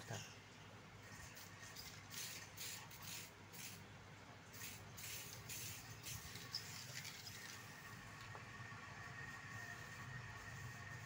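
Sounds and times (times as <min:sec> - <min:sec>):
spray paint can hissing: 0:01.4 - 0:03.8, 0:04.5 - 0:07.8.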